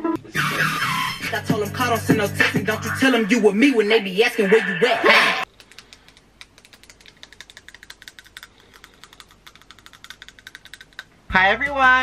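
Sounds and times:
nails tapping on teeth: 5.5s - 11.1s.

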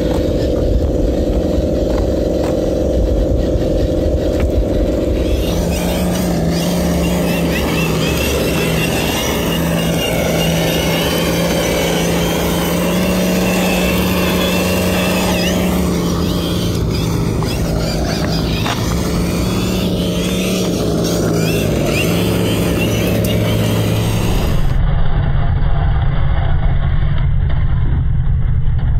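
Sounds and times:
toy truck motor whining: 0.0s - 24.8s.

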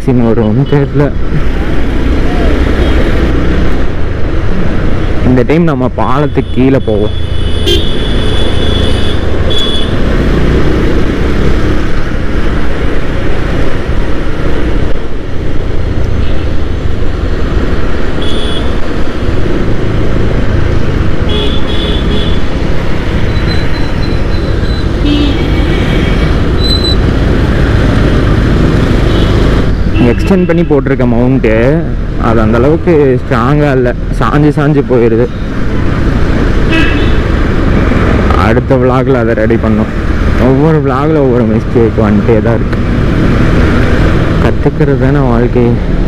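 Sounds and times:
horn toots: 36.7s - 37.3s.

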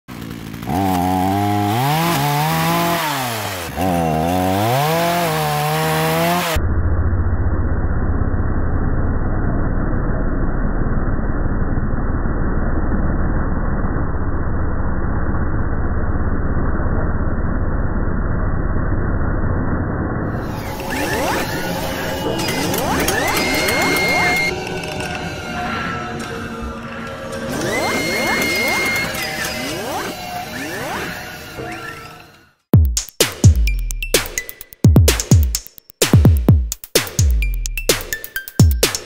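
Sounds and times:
chainsaw revving: 0.1s - 6.6s, 20.3s - 24.5s, 27.3s - 31.2s.

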